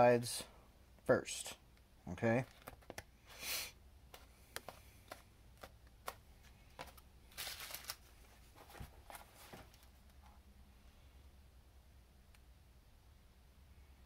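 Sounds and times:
foam piece rustle: 0:07.3 - 0:08.4.

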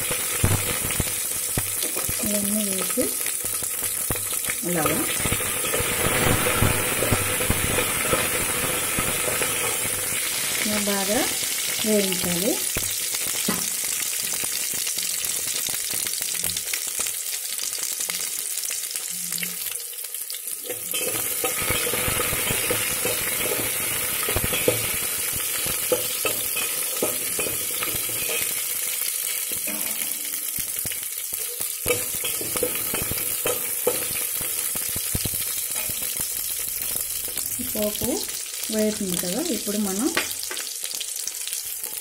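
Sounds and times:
hot oil sizzling: 0:00.0 - 0:42.0.

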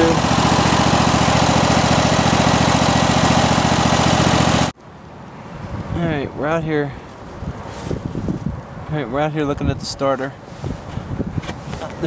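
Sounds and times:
mower engine running: 0:00.0 - 0:04.7
faint wind noise: 0:05.0 - 0:12.0.

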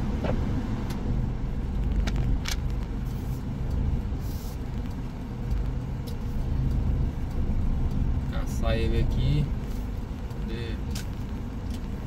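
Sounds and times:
diesel engine low rumble: 0:00.0 - 0:12.0.

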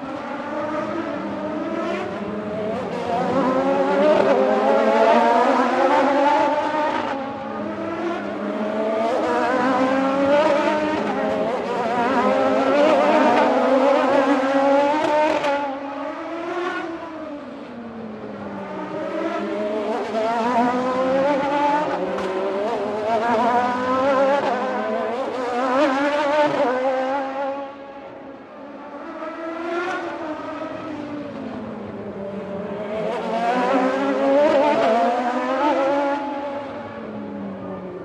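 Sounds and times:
race car engine at high revs: 0:00.0 - 0:38.0.

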